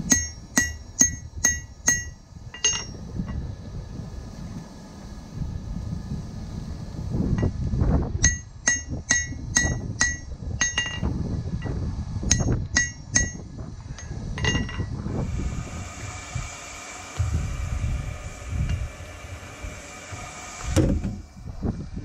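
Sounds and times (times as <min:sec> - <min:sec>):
hammer ringing on anvil: 0:00.1 - 0:03.0, 0:08.3 - 0:11.1, 0:12.3 - 0:13.4.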